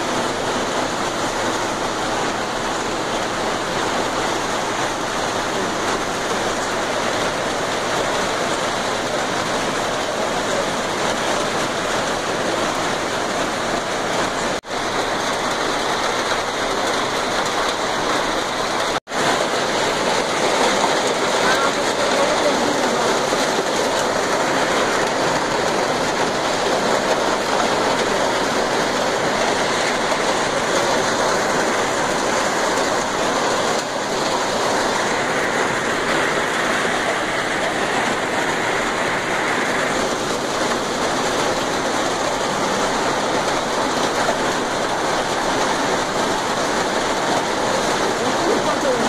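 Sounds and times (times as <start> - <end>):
heavy rain: 0.0 - 49.0
running water: 0.0 - 49.0.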